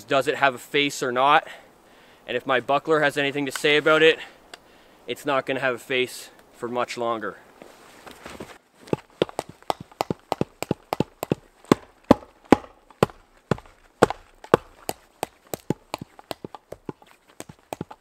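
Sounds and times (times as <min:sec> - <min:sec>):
shield knocking on wooden post: 0:09.7 - 0:13.2.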